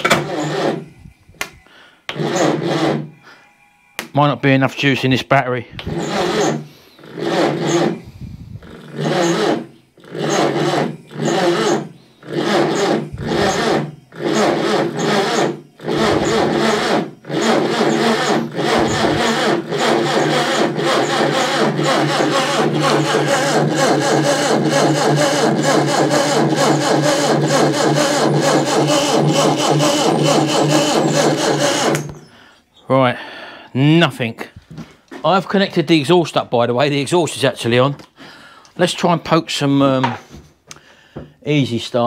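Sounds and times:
starter motor cranking engine: 0.0s - 1.0s, 2.1s - 3.2s, 5.7s - 32.4s.

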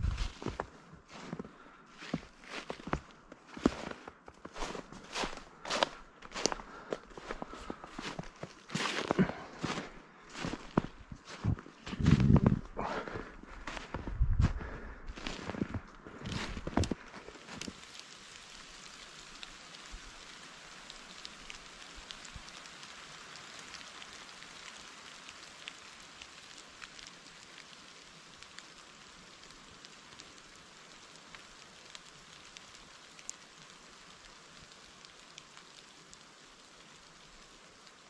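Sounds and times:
small scattered ticks: 17.4s - 38.0s.

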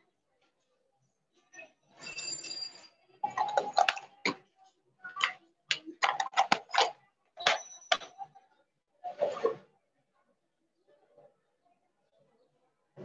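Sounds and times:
pens clicking and tapping on desk: 5.1s - 8.1s.

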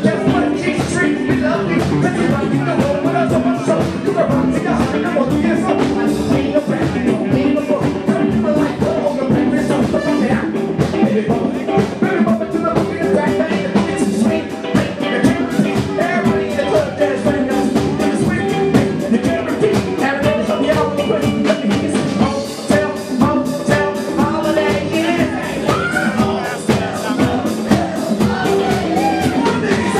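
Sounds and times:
drum kit beat: 0.0s - 29.9s
electric guitars: 0.0s - 29.9s
person singing: 0.0s - 29.9s.

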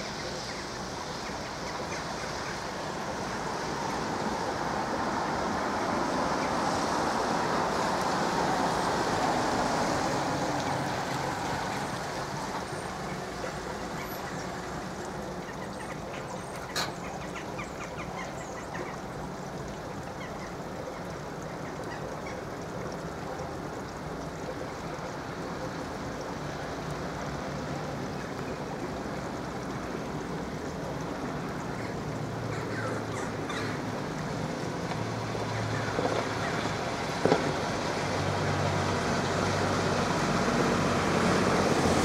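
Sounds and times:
rushing vehicle noise: 2.0s - 17.2s, 26.4s - 42.0s.

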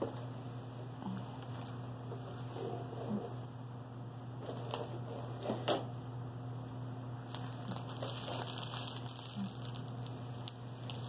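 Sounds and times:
plastic film crackling and rustling: 4.4s - 5.7s, 6.8s - 11.0s.

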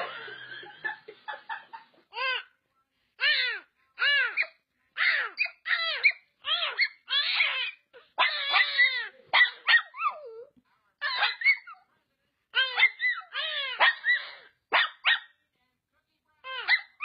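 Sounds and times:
dog yelping and whining: 3.2s - 11.8s, 12.6s - 15.3s, 16.5s - 17.0s.

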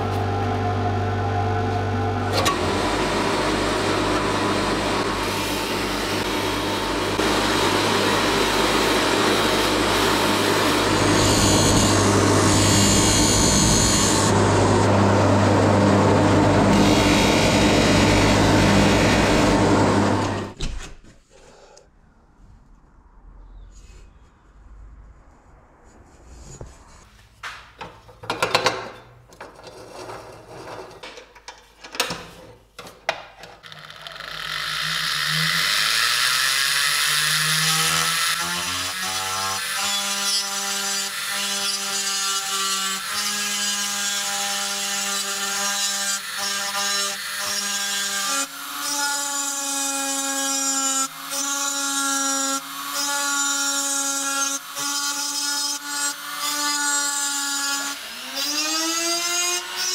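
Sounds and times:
power tool grinding metal: 0.0s - 20.6s, 33.6s - 59.9s.

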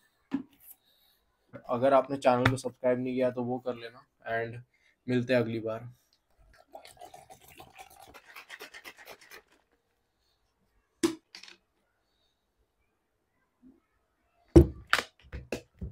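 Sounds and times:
water pouring into bottle: 6.5s - 9.6s.

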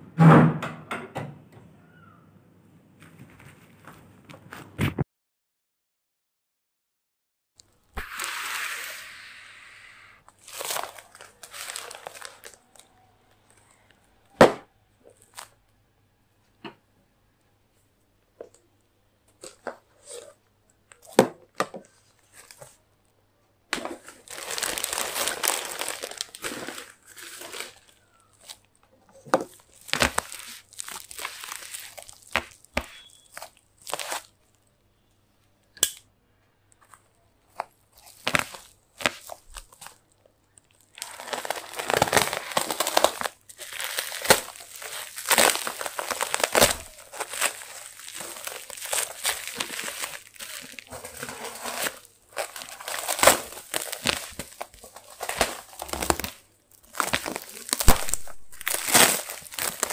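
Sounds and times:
plastic tearing: 7.6s - 9.2s, 10.2s - 14.5s, 15.1s - 15.6s, 23.7s - 34.6s, 36.7s - 59.9s
plastic film crinkling: 10.2s - 14.4s, 15.1s - 15.6s, 20.9s - 22.8s, 23.7s - 34.7s, 36.7s - 59.9s.

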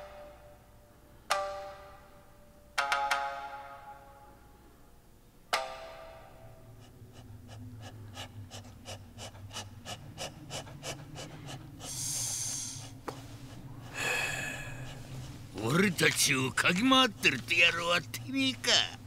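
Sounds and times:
low hum: 4.1s - 19.0s
hissing sniffs: 6.8s - 16.0s.

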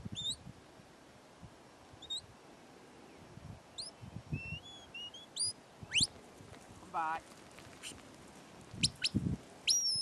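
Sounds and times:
shepherd's whistles: 3.8s - 6.1s, 8.8s - 10.0s.

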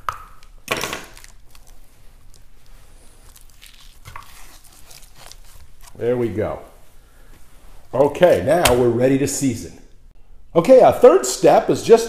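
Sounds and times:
paper towel rustling: 1.1s - 8.3s
knife scraping meat: 3.3s - 6.0s.

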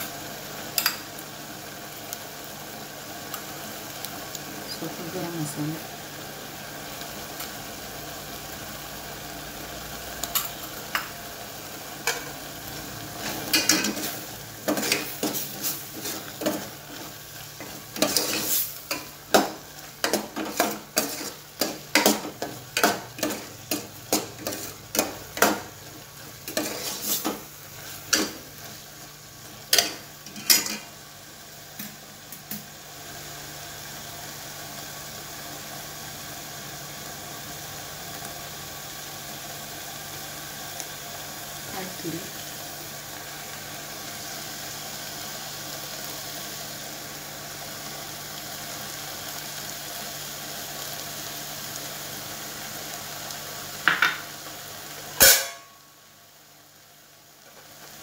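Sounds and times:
food sizzling: 0.0s - 58.0s
ladle clinking and scraping pot: 26.5s - 27.4s, 29.7s - 30.9s.

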